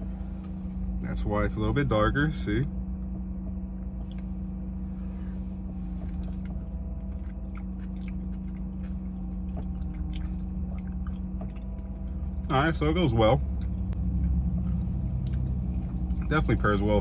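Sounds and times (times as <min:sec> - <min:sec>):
car idling hum: 0:00.0 - 0:17.0
person chewing: 0:04.0 - 0:12.4, 0:13.4 - 0:16.4.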